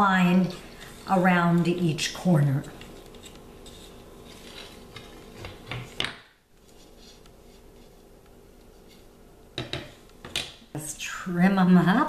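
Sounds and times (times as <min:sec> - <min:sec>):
light rubbing: 0:02.5 - 0:06.0.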